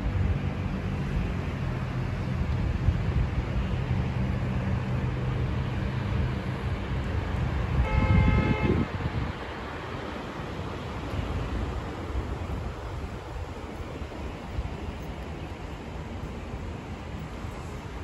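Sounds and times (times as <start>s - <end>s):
passing vehicles: 0.0s - 18.0s
vehicle engine humming: 0.0s - 18.0s
vehicle horn toot: 7.8s - 8.9s.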